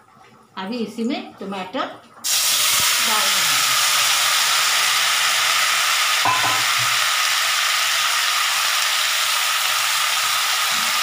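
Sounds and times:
tomatoes sizzling in hot oil: 2.2 - 11.0.

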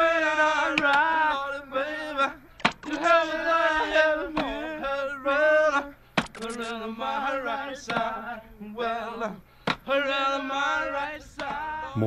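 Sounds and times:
man singing long notes: 0.0 - 12.0
short sharp click: 6.2 - 6.7.

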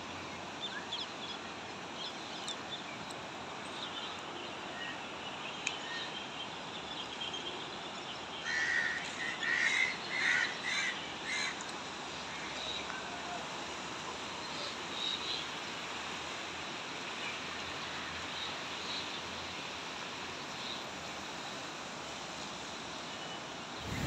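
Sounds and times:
rushing floodwater: 7.7 - 24.0.

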